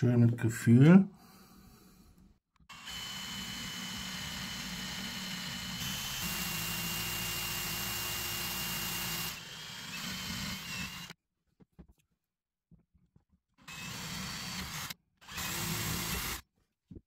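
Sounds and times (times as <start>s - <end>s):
electric drill boring wood: 2.7s - 11.2s, 13.6s - 16.4s.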